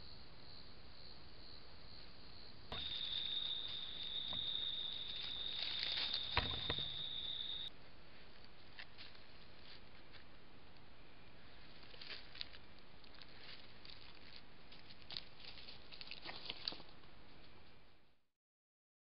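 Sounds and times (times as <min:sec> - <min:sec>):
badger rustling in leaf litter: 0:04.8 - 0:06.4.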